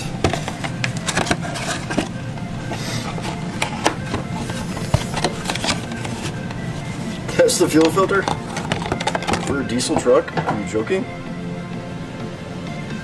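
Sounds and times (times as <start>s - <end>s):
cardboard box rustling: 0.0s - 9.5s
steady low hum: 0.0s - 13.0s.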